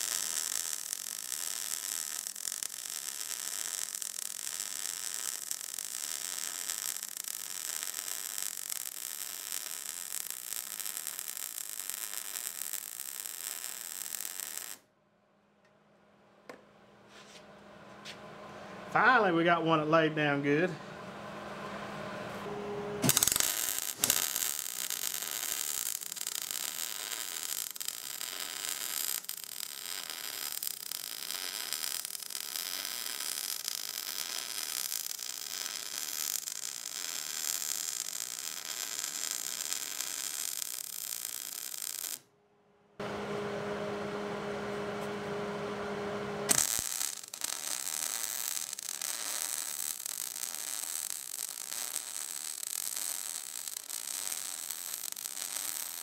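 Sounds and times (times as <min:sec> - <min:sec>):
welding arc crackling: 0:00.0 - 0:14.8, 0:23.0 - 0:42.2, 0:46.5 - 0:56.0
steady low hum: 0:43.0 - 0:46.5.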